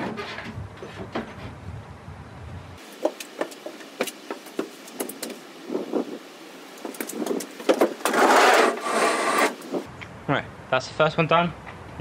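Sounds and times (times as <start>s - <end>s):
loud rustling and scraping: 6.8s - 9.9s.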